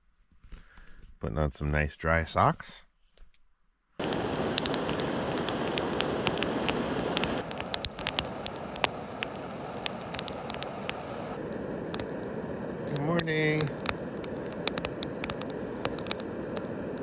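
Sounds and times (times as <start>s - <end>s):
campfire crackling and popping: 4.0s - 17.0s
fire hiss: 4.0s - 17.0s.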